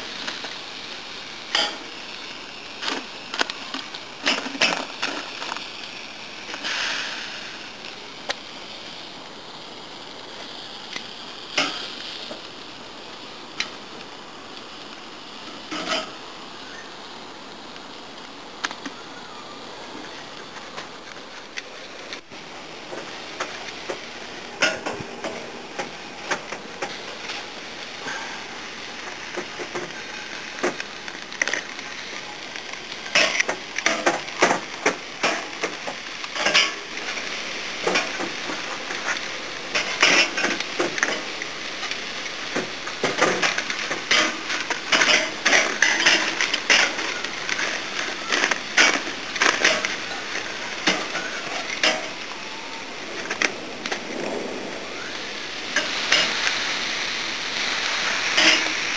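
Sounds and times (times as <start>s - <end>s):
steady hiss: 0.0s - 58.9s
tongs clicking and scraping on grate: 1.5s - 1.8s.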